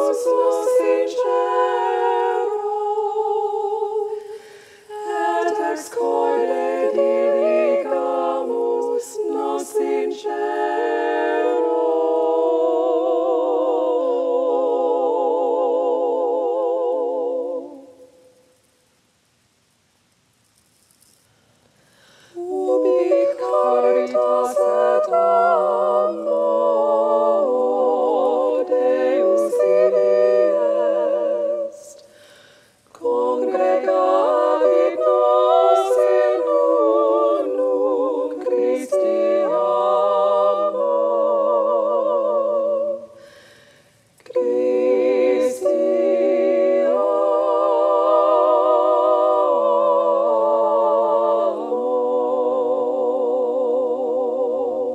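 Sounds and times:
voices singing a hymn in harmony: 0.0 - 18.4, 22.2 - 54.9.

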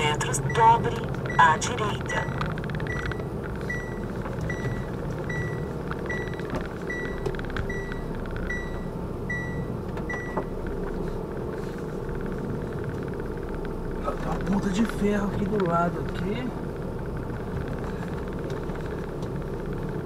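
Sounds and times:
reversing alarm beeping: 0.0 - 10.5
truck engine running: 0.0 - 20.0.

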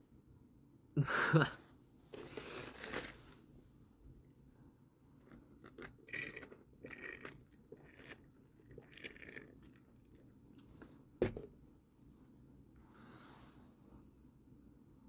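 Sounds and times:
person sipping through a straw: 2.2 - 3.2, 5.2 - 10.7.

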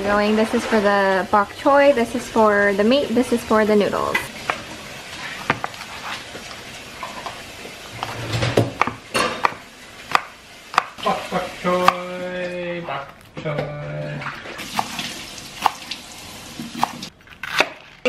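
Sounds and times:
knife chopping on wooden board: 8.0 - 11.0, 16.7 - 17.8.

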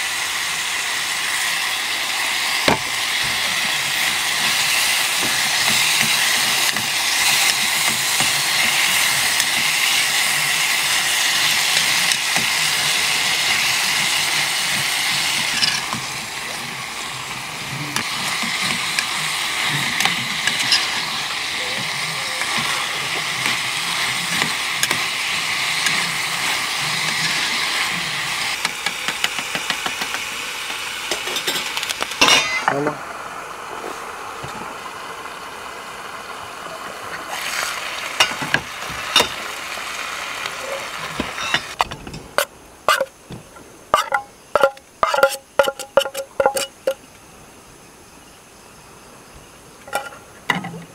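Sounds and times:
meat sizzling in a pan: 0.0 - 41.8
metal clank: 31.1 - 32.7
metal spatula scraping a pan: 43.9 - 47.0.

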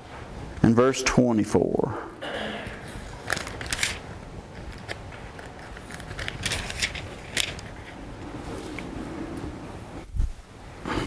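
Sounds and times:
pages rustling: 2.9 - 9.4.

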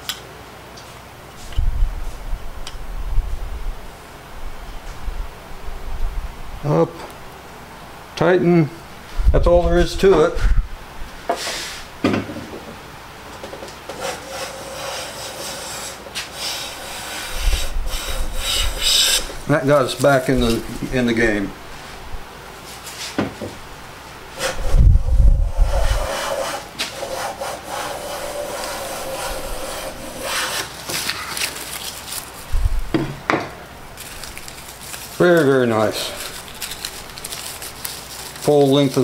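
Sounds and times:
hand plane rasping scrape: 13.9 - 19.3, 25.6 - 30.7.

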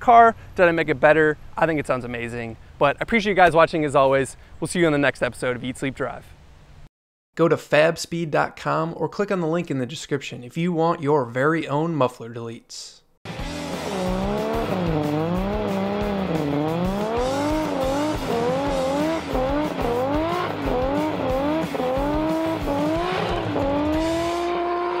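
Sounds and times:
car engine revving: 13.3 - 25.0.

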